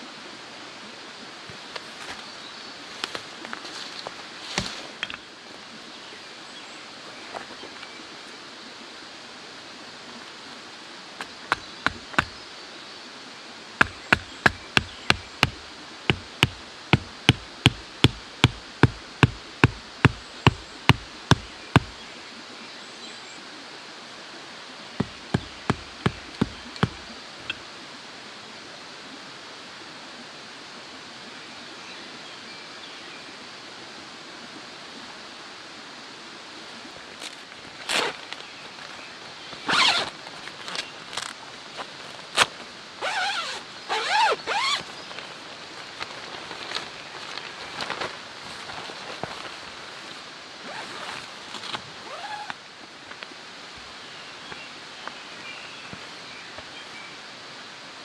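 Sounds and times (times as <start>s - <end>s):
steady background hiss: 0.0s - 58.0s
hatchet hammering a wooden stake: 11.5s - 12.4s, 13.8s - 22.0s, 25.0s - 27.0s.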